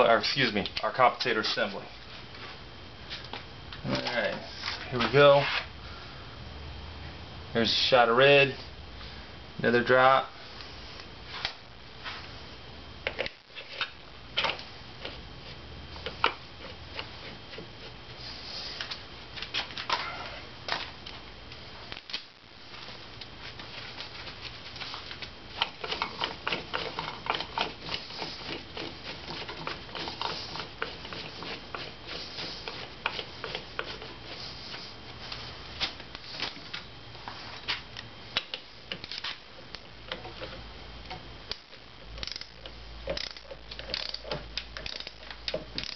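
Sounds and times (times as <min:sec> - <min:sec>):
hand ratchet clicking: 0:42.2 - 0:45.9.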